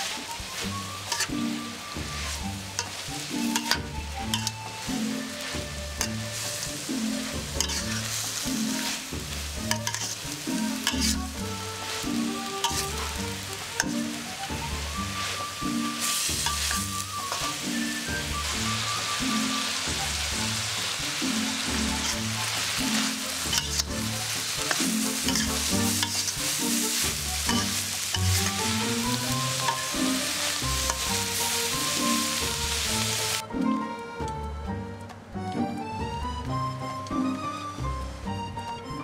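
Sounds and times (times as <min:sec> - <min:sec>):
spatula scraping metal pan: 0:00.0 - 0:01.4, 0:02.2 - 0:04.6, 0:05.2 - 0:14.0, 0:15.2 - 0:17.6, 0:21.8 - 0:32.4
food sizzling in oil: 0:00.0 - 0:33.4
background music with low beat: 0:00.2 - 0:39.0.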